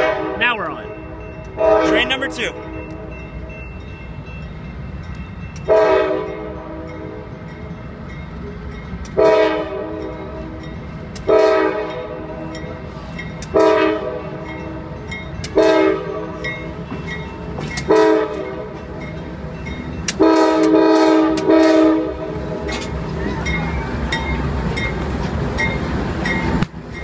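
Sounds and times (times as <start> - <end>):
locomotive horn blasts: 0.0 - 3.1, 5.7 - 7.1, 9.1 - 10.2, 11.3 - 12.4, 13.5 - 16.4, 17.9 - 18.8, 20.1 - 22.4
locomotive rumble: 0.0 - 27.0.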